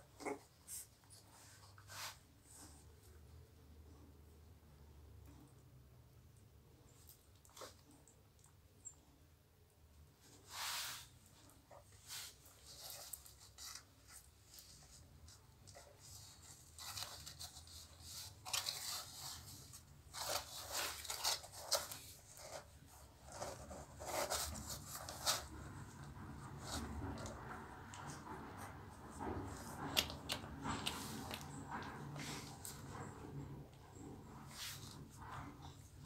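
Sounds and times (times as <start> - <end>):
rustling: 10.0 - 36.0
puppies sucking and smacking: 11.2 - 36.0.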